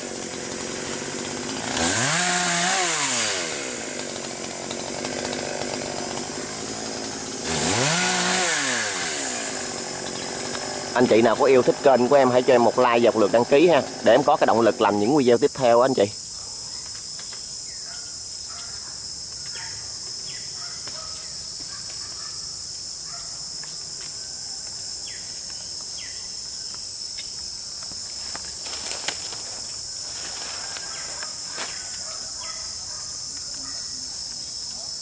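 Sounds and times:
high-pitched insect buzzing: 13.6s - 35.0s.

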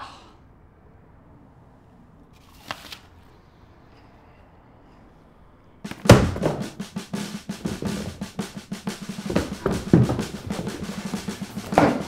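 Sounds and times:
bass drum: 5.9s - 12.0s
fast snare drum rolls: 5.9s - 12.0s.

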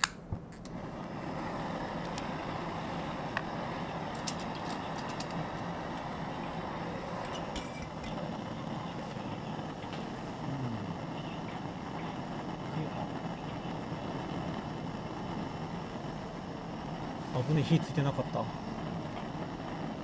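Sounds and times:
gas stove ignition click: 0.0s - 0.2s
gas burner hissing: 0.0s - 20.0s
pot set on stove: 4.1s - 6.0s, 7.0s - 8.2s.

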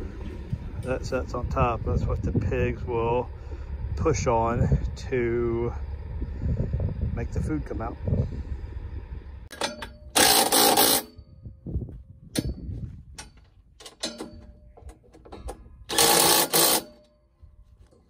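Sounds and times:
clicks and knocks of parts handled: 9.5s - 11.0s, 12.3s - 17.2s
cordless drill driving fasteners: 9.6s - 11.1s, 14.8s - 17.0s.

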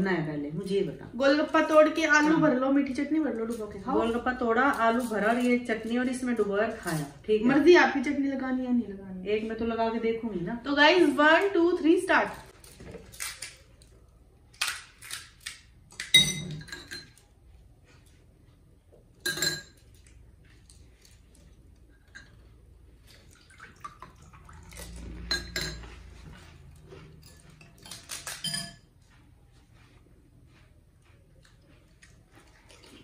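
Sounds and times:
metal spoons clinking on glass bowls: 16.1s - 17.3s, 19.2s - 20.1s, 24.8s - 26.0s, 27.2s - 28.9s.

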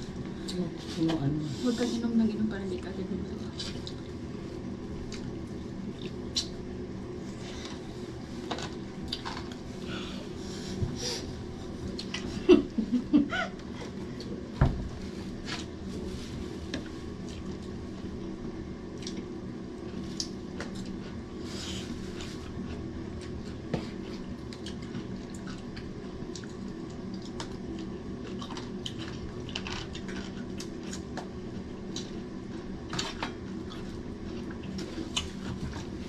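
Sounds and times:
low background hum: 0.0s - 36.0s
chewing and lip smacks: 5.0s - 6.6s, 18.9s - 19.3s, 24.4s - 31.3s
fingers clicking and rustling in rice: 18.9s - 36.0s.

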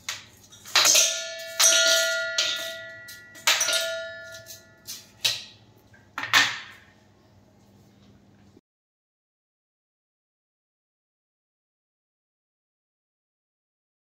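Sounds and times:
metal utensils clinking on steel: 0.0s - 5.6s
steel vessel ringing: 0.8s - 5.5s.

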